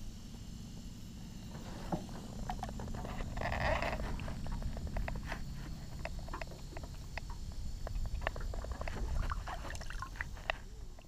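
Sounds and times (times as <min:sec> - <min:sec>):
steady low rumble: 0:00.0 - 0:11.0
water splashing and dripping: 0:06.2 - 0:11.0.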